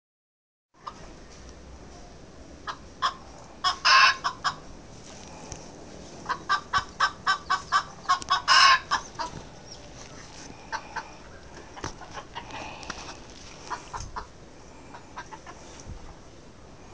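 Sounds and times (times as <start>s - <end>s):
chicken clucking: 2.6s - 4.7s, 6.2s - 15.9s.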